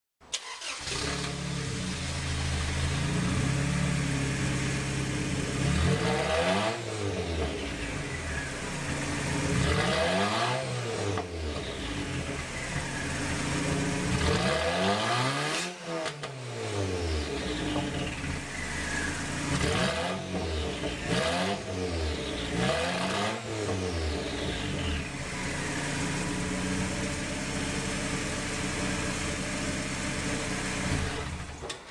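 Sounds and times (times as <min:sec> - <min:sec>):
car engine idling and revving: 0:00.4 - 0:31.9.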